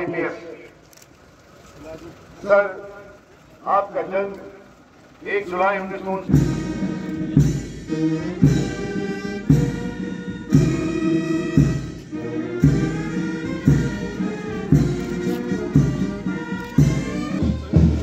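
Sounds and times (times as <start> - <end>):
brass band playing a march: 5.2 - 18.0.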